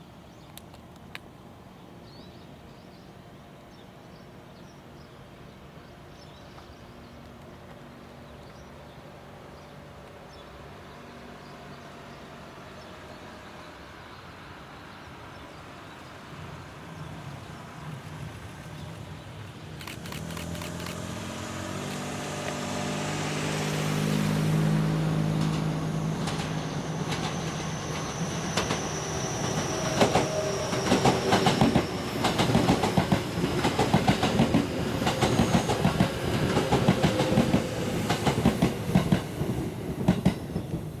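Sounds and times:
electric train hum: 5.4 - 41.0
train wheels clacking over rail joints: 25.4 - 28.9, 29.5 - 40.8.

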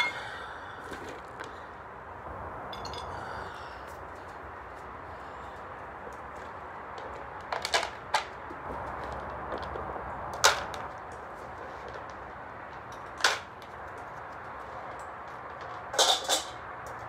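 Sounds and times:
bowls and kibble clattering: 15.6 - 16.6.

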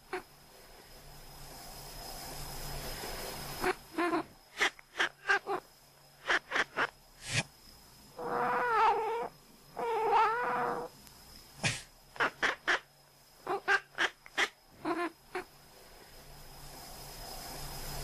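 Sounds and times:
cat squeaky calls: 3.6 - 5.6, 6.2 - 6.9, 8.2 - 10.9, 13.5 - 15.1
cat meowing: 8.2 - 10.9.

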